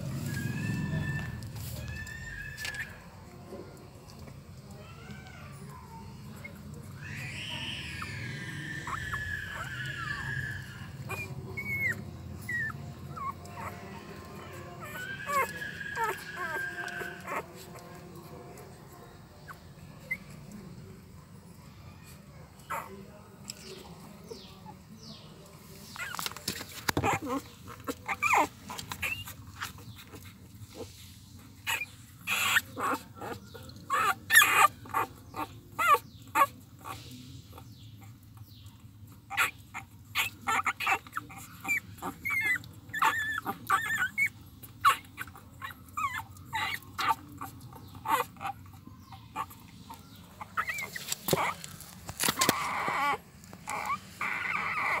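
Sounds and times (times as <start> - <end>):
rustling: 0.0 - 3.2, 25.3 - 33.7, 46.8 - 55.0
puppies squeaking and whimpering: 0.0 - 55.0.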